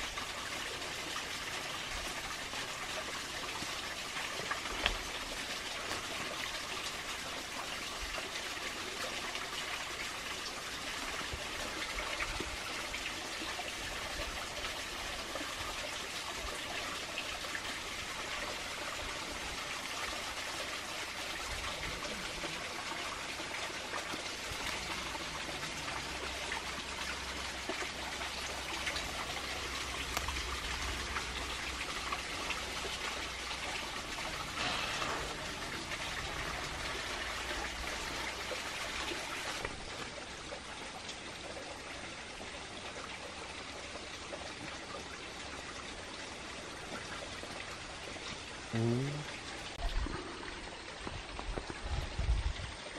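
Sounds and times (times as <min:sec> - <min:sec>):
running water trickling: 0:00.0 - 0:52.9.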